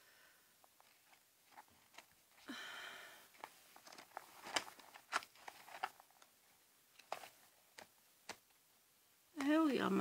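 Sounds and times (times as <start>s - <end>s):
paper rustling on tabletop: 3.4s - 6.2s.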